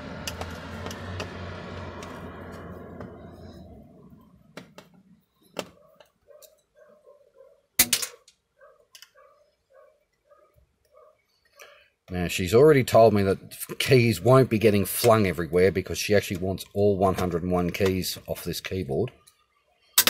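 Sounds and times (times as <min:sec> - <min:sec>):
low rumble: 0:00.0 - 0:04.8.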